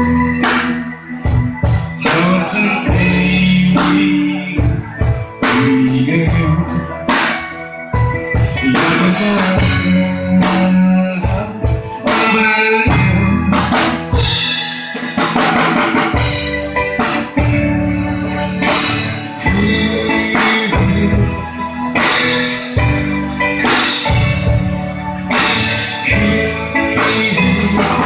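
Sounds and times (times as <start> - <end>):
drum kit beat: 0.0 - 28.0
electronic keyboard chords: 0.0 - 28.0.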